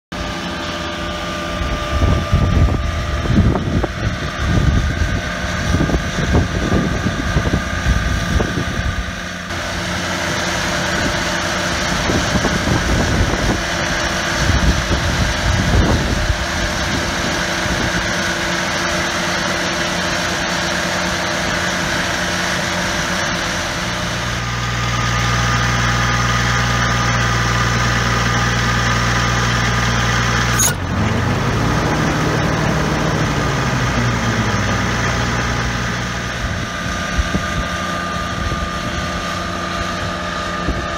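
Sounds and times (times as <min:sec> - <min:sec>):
tractor engine idling: 0:00.1 - 0:40.9.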